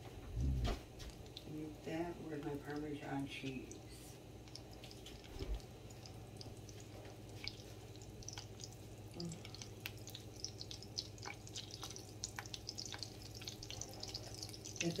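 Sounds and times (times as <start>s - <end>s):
low steady hum: 0.0s - 15.0s
butter crackling and popping in pan: 4.4s - 15.0s.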